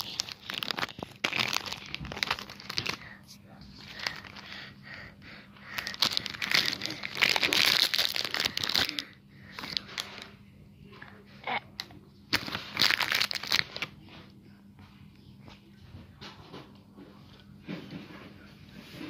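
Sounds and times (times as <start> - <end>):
wrapper crinkling: 0.0 - 3.1, 5.7 - 10.3, 12.3 - 13.9.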